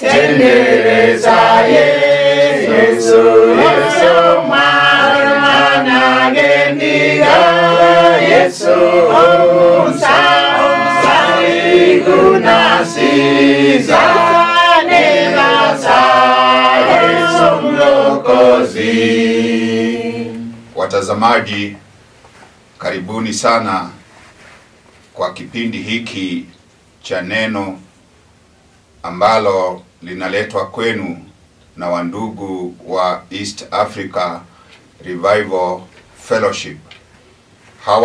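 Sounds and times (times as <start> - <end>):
congregation singing: 0.0 - 21.4.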